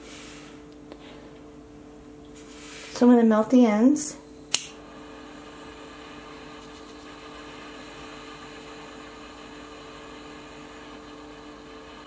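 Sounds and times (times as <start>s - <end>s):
jet lighter hissing: 4.4s - 12.0s.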